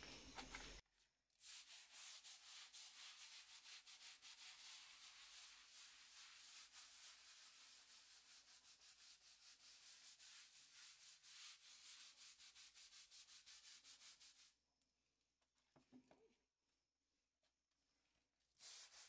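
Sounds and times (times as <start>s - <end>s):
scrub brush scrubbing a wall: 1.4s - 14.6s, 18.1s - 19.0s.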